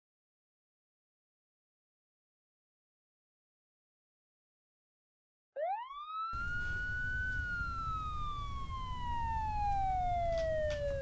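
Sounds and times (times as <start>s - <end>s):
siren wailing: 5.6s - 11.0s.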